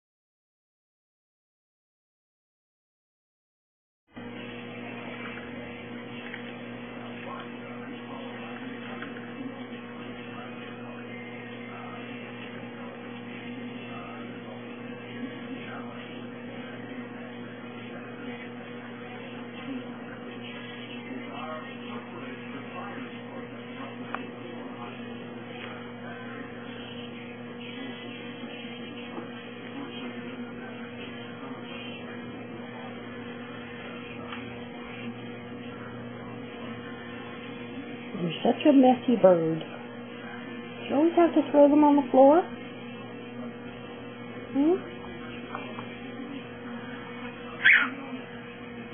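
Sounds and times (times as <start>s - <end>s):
electrical hum: 4.1s - 48.9s.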